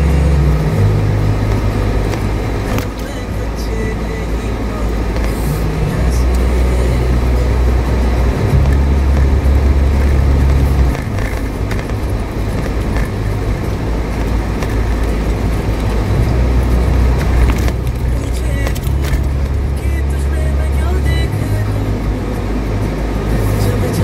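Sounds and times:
car engine: 0:00.0 - 0:24.0
low drone: 0:00.0 - 0:24.0
tyres on dirt track: 0:00.0 - 0:24.0.

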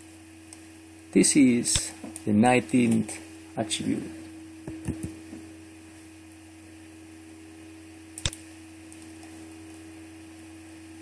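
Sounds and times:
faint electrical hum: 0:00.0 - 0:11.0
computer mouse click: 0:08.2 - 0:08.4.

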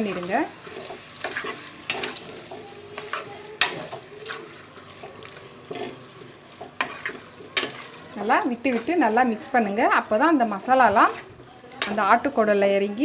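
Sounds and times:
sizzle of frying: 0:00.0 - 0:13.0
metal ladle scraping a pot: 0:06.6 - 0:09.1.

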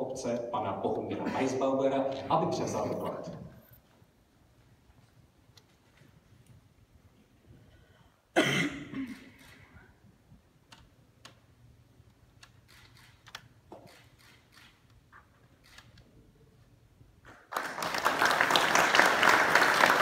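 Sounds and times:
audience applause: 0:17.5 - 0:20.0.

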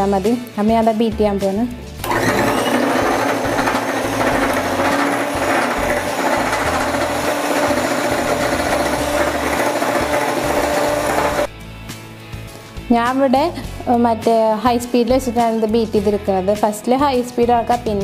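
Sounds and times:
electric hand mixer whipping: 0:02.0 - 0:11.5.

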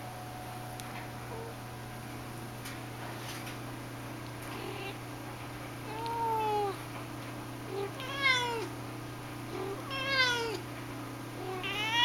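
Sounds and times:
cat meowing: 0:05.9 - 0:06.8, 0:07.7 - 0:08.7, 0:09.5 - 0:10.6, 0:11.4 - 0:12.0.

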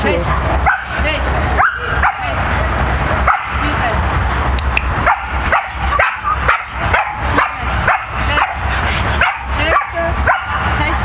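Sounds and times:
dog yipping barks: 0:00.3 - 0:00.9, 0:01.6 - 0:02.4, 0:03.2 - 0:03.6, 0:05.0 - 0:08.6, 0:09.2 - 0:10.8.

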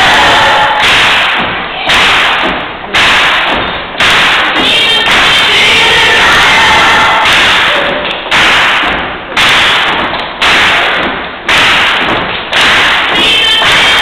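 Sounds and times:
heavy beat hits: 0:00.0 - 0:14.0
gospel choir and band: 0:04.6 - 0:08.0.

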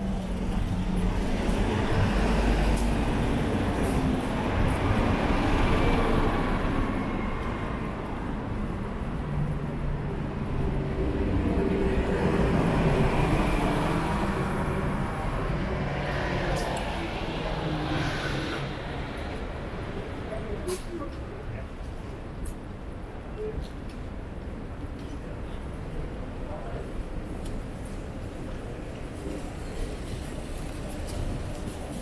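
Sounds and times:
passing vehicles rumbling: 0:00.0 - 0:23.1.

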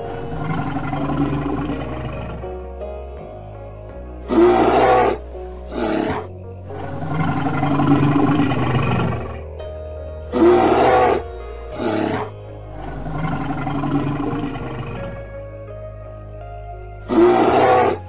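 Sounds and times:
bear roaring: 0:00.0 - 0:02.7, 0:04.2 - 0:09.5, 0:10.2 - 0:15.2, 0:17.0 - 0:18.0
background music: 0:00.0 - 0:18.0.

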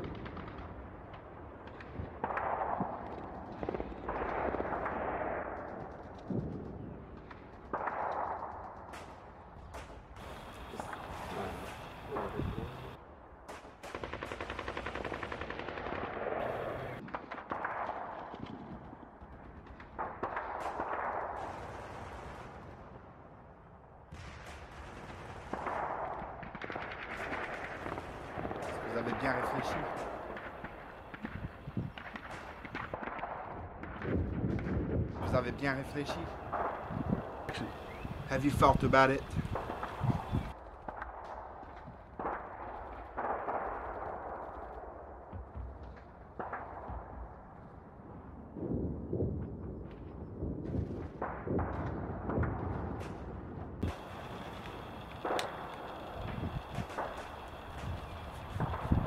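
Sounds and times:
gunfire: 0:01.6 - 0:23.1, 0:24.1 - 0:45.7, 0:50.8 - 0:59.0
explosions: 0:27.2 - 0:41.2, 0:50.7 - 0:59.0.

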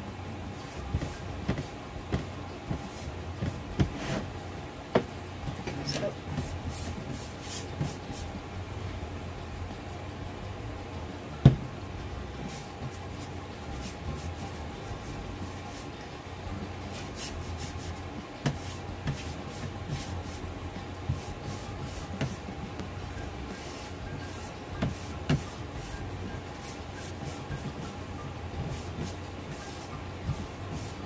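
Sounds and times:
paintbrush swishing on wood: 0:28.6 - 0:31.0.

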